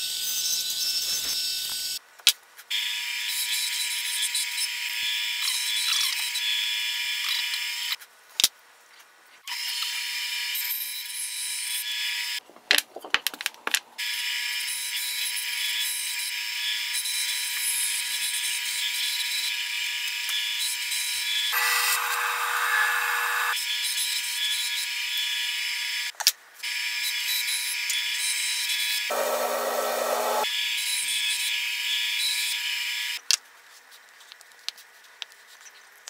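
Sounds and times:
bandsaw cutting wood: 21.4 - 23.6, 29.1 - 30.5.

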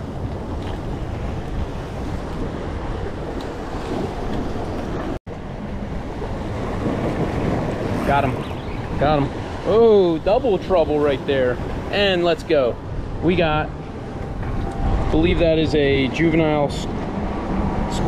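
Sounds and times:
wind buffeting microphone: 0.0 - 18.0
waves washing against rocks: 6.0 - 13.7.

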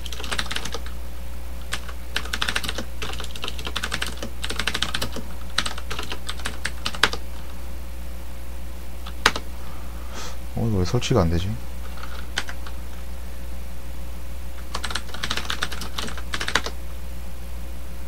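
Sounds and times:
typing on computer keyboard: 0.0 - 0.9, 1.7 - 7.2, 9.1 - 9.4, 11.9 - 12.7, 14.7 - 16.8
steady low hum: 0.0 - 18.0.

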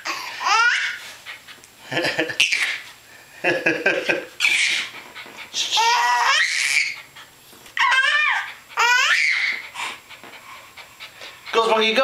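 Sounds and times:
baby laughing: 0.0 - 1.0, 2.0 - 2.9, 3.5 - 5.0, 5.6 - 7.1, 7.8 - 10.0.

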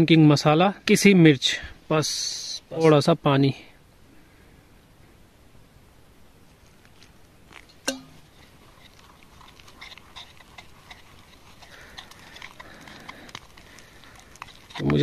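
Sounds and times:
batter squishing: 6.8 - 15.0
glass bowl clink: 7.8 - 8.3.

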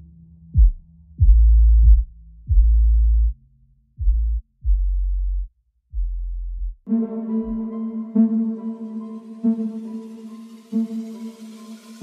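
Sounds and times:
deep electronic bass notes: 0.0 - 6.8.

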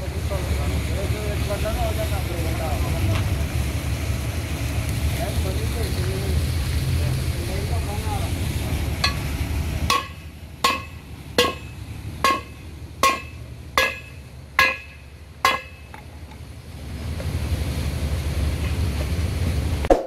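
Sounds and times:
hammer striking metal: 9.0 - 9.3, 9.9 - 16.1.

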